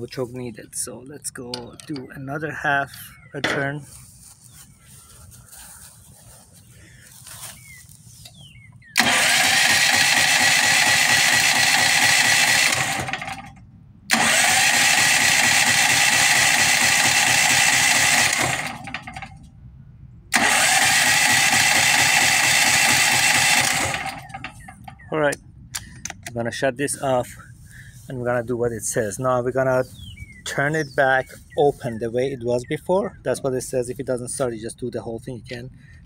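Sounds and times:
generator engine starting: 0:08.9 - 0:19.5, 0:20.3 - 0:25.1.

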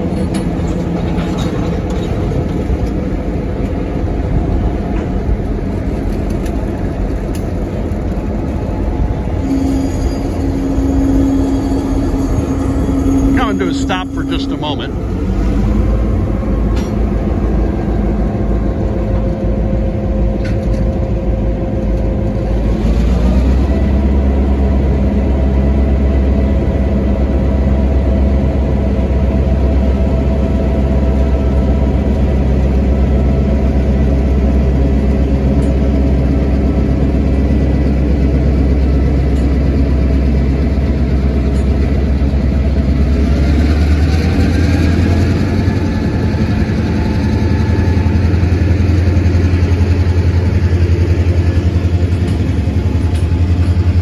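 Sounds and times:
diesel locomotive engine running: 0:00.0 - 0:54.0.

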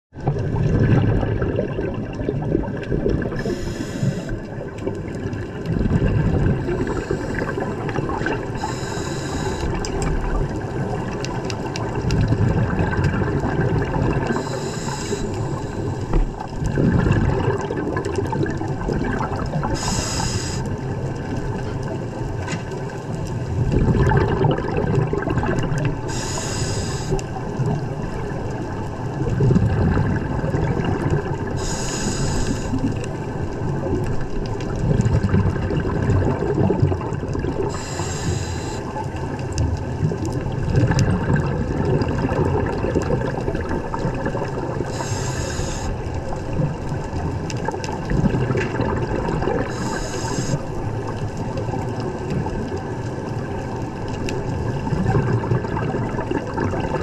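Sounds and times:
exhaled bubbles rumbling: 0:00.1 - 0:57.0
regulator hissing inhalation: 0:03.4 - 0:04.4, 0:06.7 - 0:07.6, 0:08.6 - 0:09.8, 0:14.3 - 0:16.1, 0:19.7 - 0:20.7, 0:26.1 - 0:27.2, 0:31.6 - 0:32.8, 0:37.7 - 0:38.9, 0:44.9 - 0:46.0, 0:49.7 - 0:50.6.

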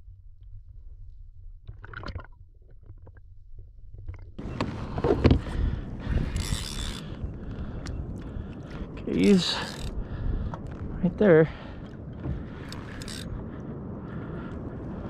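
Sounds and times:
muffled underwater rumble: 0:02.8 - 0:15.0
fishing rod and reel knocks: 0:06.2 - 0:07.0, 0:11.8 - 0:13.3.

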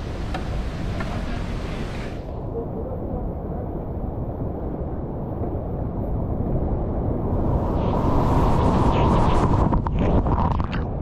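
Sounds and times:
water splash and hiss: 0:00.0 - 0:02.3.

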